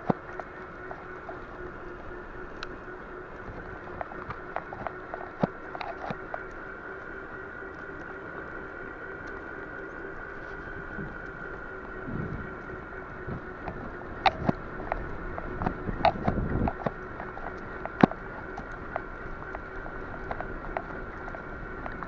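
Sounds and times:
bicycle tyre and drivetrain noise: 0:00.0 - 0:22.0
bike clicks and rattles: 0:00.0 - 0:22.0
faint steady whine: 0:00.0 - 0:22.0
wind on microphone: 0:09.5 - 0:22.0.

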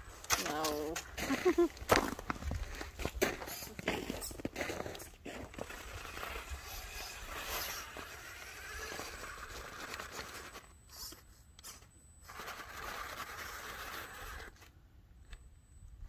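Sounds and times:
toy car electric motor whirring: 0:03.4 - 0:14.7.

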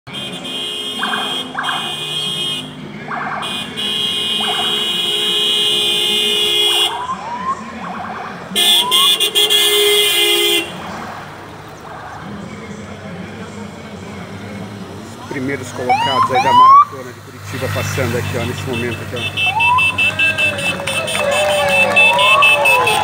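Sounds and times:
horn toots: 0:00.1 - 0:07.1, 0:08.6 - 0:10.9, 0:17.6 - 0:23.0
siren tones: 0:01.0 - 0:02.0, 0:04.3 - 0:05.0, 0:06.9 - 0:09.2, 0:15.8 - 0:16.9, 0:19.4 - 0:20.3
rising siren chirps: 0:04.4 - 0:04.9, 0:06.9 - 0:09.2, 0:11.7 - 0:12.3, 0:15.7 - 0:17.0, 0:19.4 - 0:20.2, 0:21.0 - 0:23.0.

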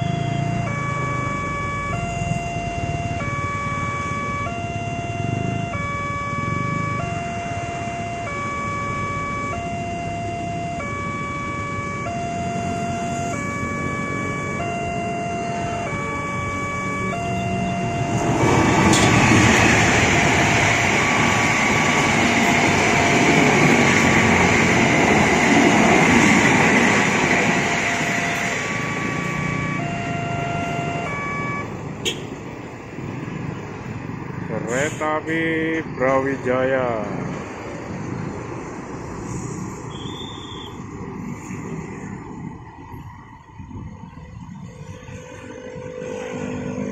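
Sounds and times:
train rumble and wheel noise: 0:07.5 - 0:46.9.

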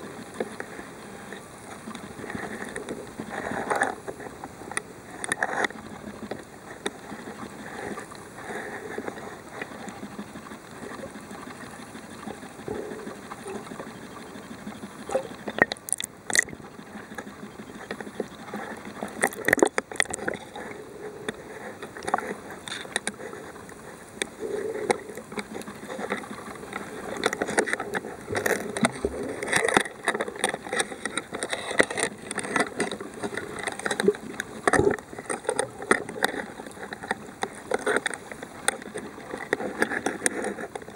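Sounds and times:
underwater water rush and gurgle: 0:00.0 - 0:40.9.

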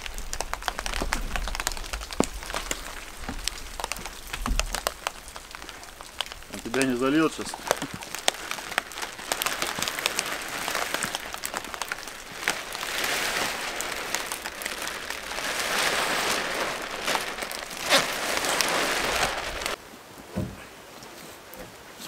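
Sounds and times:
plastic film rustling: 0:00.0 - 0:19.8
rain spattering: 0:00.0 - 0:19.8
dull thump: 0:20.3 - 0:20.7.

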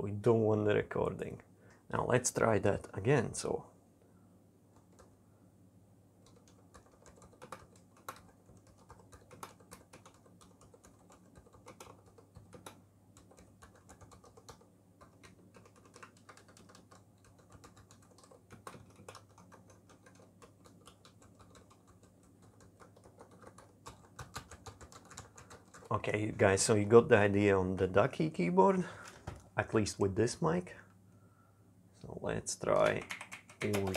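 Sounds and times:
faint low hum: 0:00.0 - 0:33.9
mechanical keyboard typing: 0:04.8 - 0:05.1, 0:06.2 - 0:26.0, 0:32.7 - 0:33.9.

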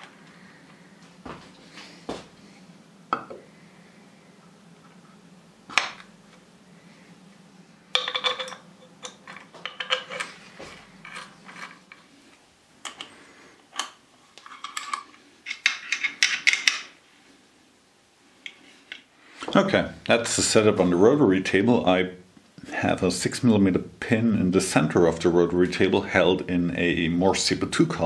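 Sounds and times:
metal clinks and rattles: 0:08.0 - 0:10.4, 0:14.4 - 0:16.9.

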